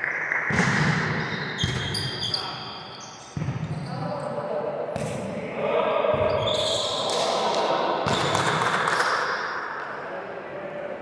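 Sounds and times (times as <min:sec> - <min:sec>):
background noise: 0:00.0 - 0:11.0
volleyball strikes echoing: 0:00.4 - 0:02.7, 0:03.3 - 0:03.8, 0:04.9 - 0:05.4, 0:06.1 - 0:09.5.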